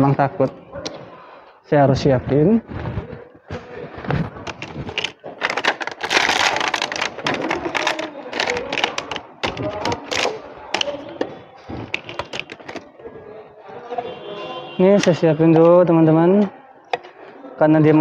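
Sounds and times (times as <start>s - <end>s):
rustling plastic: 2.7s - 12.9s
plastic containers rattling and clicking: 3.1s - 12.9s.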